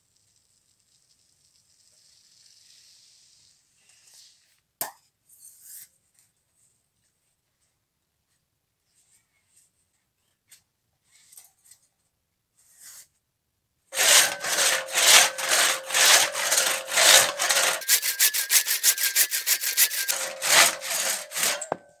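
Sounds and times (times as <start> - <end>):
saw rasping through wood: 14.0 - 22.0.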